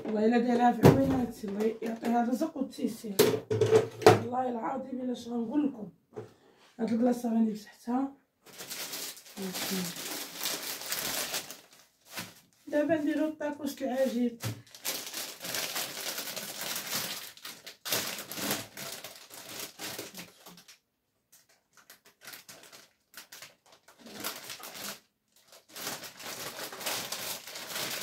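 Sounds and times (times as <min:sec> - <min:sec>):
plastic bag crinkling: 0:08.4 - 0:20.8, 0:21.4 - 0:28.0.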